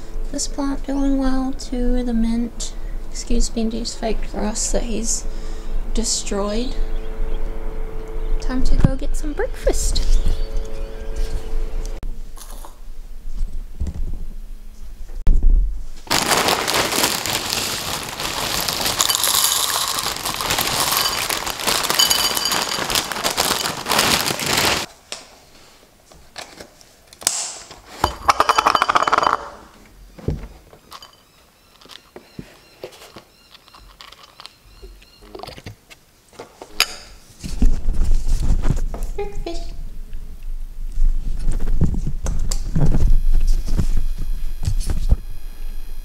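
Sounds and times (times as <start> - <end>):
plastic bag crinkling: 16.0 - 24.9
cereal rattling into bowl: 16.1 - 24.9.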